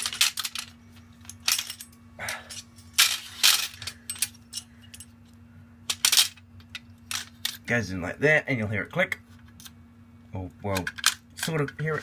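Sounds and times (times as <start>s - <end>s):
metal rack parts clicking and knocking: 0.0s - 5.1s.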